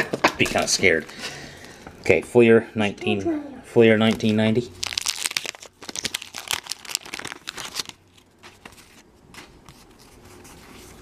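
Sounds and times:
wax paper wrapper crinkling and tearing: 0:04.1 - 0:09.0.

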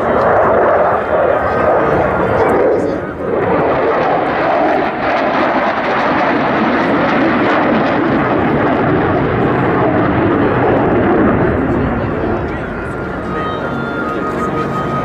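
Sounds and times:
loud jet noise: 0:00.0 - 0:15.0.

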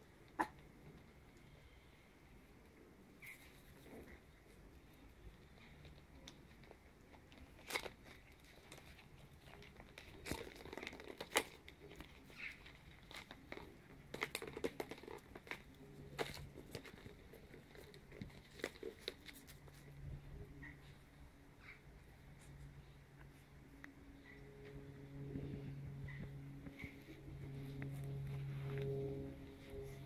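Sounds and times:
puppies scampering on concrete: 0:03.2 - 0:24.8.

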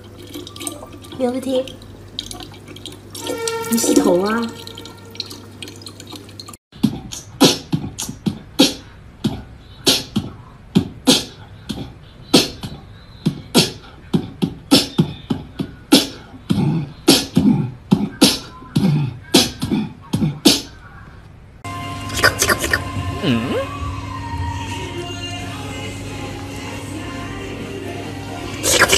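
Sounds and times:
beatboxing mouth percussion: 0:06.8 - 0:20.8, 0:22.1 - 0:23.7, 0:28.6 - 0:28.9.

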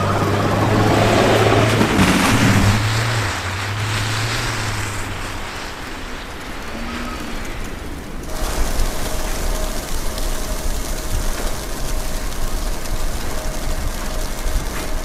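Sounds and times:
wind rushing: 0:00.0 - 0:09.8
fine snow pattering: 0:00.0 - 0:15.0
wind gusts on microphone: 0:00.0 - 0:15.0.

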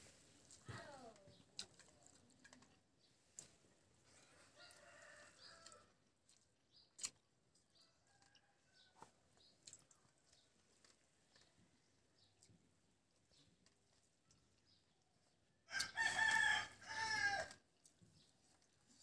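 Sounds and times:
faint rooster crow: 0:04.2 - 0:06.0, 0:07.8 - 0:09.2, 0:15.7 - 0:17.6.

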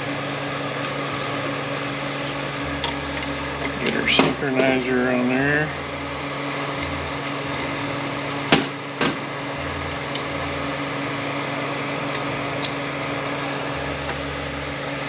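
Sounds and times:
steady mechanical hum: 0:00.0 - 0:15.0.

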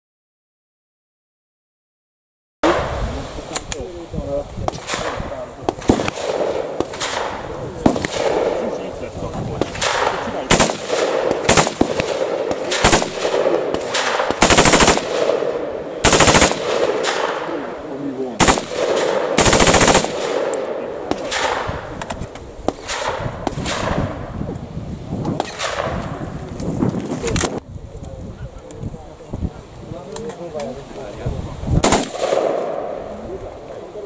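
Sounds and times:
rifle firing bursts and shots: 0:04.7 - 0:08.9, 0:09.5 - 0:24.3, 0:31.8 - 0:33.1.

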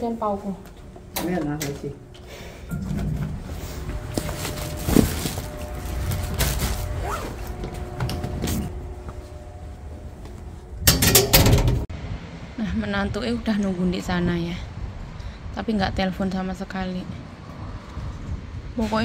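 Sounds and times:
faint steady whine: 0:00.0 - 0:11.3
lift humming: 0:00.0 - 0:12.0
loud rustling clatter: 0:02.8 - 0:08.9.

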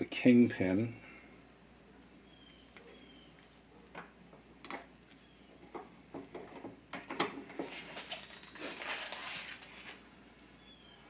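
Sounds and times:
rustle: 0:07.6 - 0:11.0.

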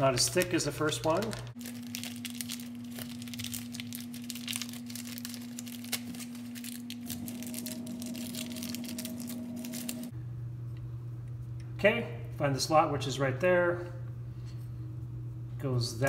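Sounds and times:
plastic bag crinkling: 0:00.0 - 0:10.1
steady low hum: 0:00.0 - 0:16.0.

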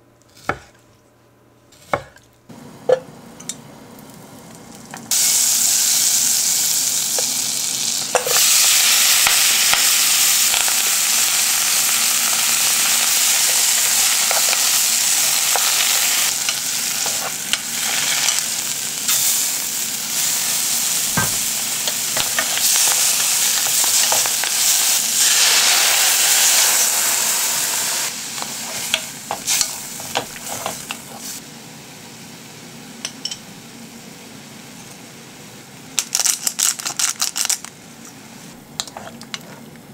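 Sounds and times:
food sizzling in a saucepan: 0:04.4 - 0:32.6
wooden spoon scraping and tapping pan: 0:28.7 - 0:31.1.

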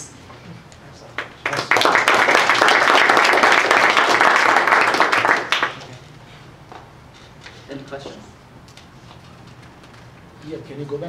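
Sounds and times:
audience applauding: 0:01.2 - 0:06.0.

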